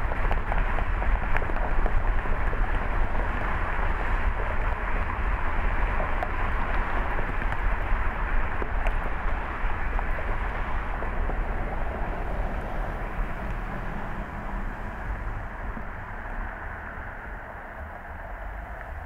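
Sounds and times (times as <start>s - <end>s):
deep low rumble: 0.0s - 19.0s
tyre and road noise: 0.0s - 19.0s.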